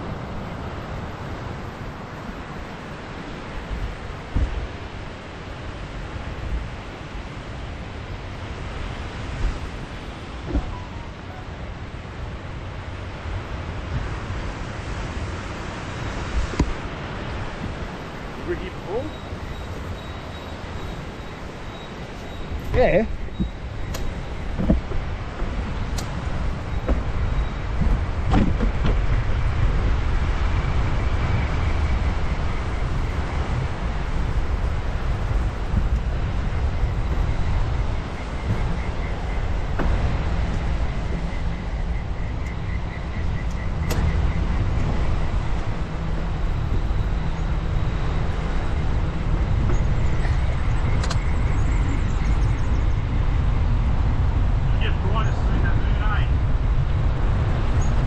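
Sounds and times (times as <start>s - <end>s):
wind buffeting microphone: 0.0s - 58.0s
short squeaks and knocks: 10.5s - 11.5s, 19.1s - 25.6s, 49.4s - 51.2s
wheels rolling over pavement: 16.4s - 54.6s.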